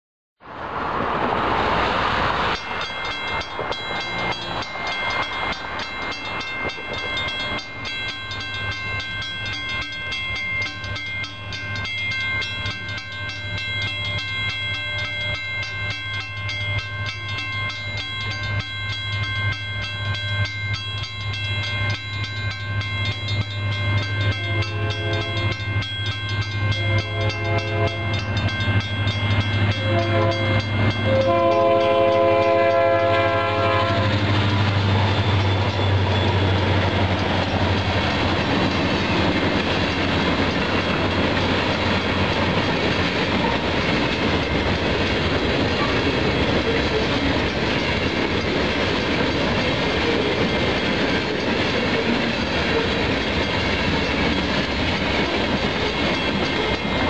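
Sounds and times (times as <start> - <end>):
diesel locomotive drone: 0.4 - 57.0
crossing signal bells ringing: 2.4 - 57.0
locomotive horn blasts: 24.3 - 25.6, 26.7 - 28.4, 29.6 - 34.3.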